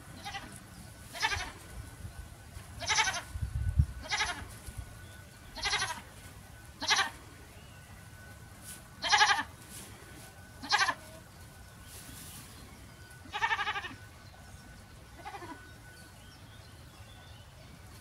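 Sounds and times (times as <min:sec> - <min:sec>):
goat bleating: 0:00.1 - 0:01.6, 0:02.8 - 0:03.3, 0:04.0 - 0:04.6, 0:05.5 - 0:06.2, 0:06.8 - 0:07.3, 0:09.0 - 0:09.6, 0:10.6 - 0:11.3, 0:13.2 - 0:14.1, 0:15.1 - 0:15.7.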